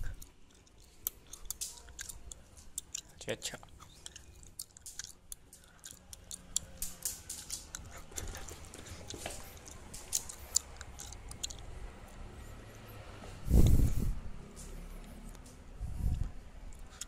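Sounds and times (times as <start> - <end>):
scratching clicks and ticks: 0.0 - 12.0
low rubbing rumble: 11.6 - 16.8.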